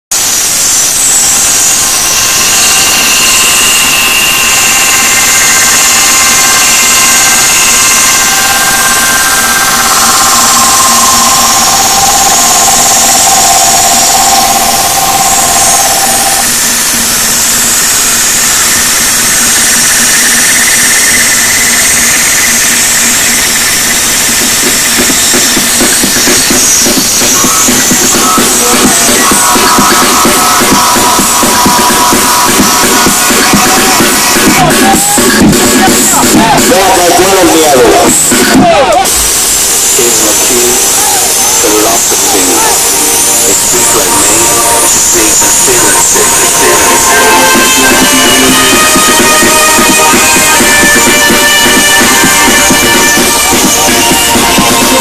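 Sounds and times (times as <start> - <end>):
distorted car stereo at extreme volume: 0.0 - 55.0
rhythmic beat: 0.0 - 55.0.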